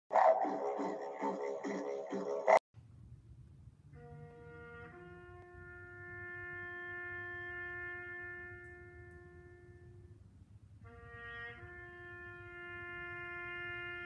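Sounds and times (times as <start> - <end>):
bugle playing: 4.5 - 9.9, 10.9 - 14.0.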